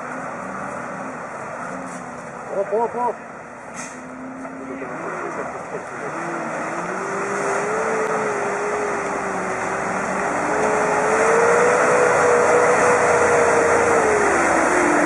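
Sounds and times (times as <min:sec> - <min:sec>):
water churning and splashing: 0:04.8 - 0:15.0.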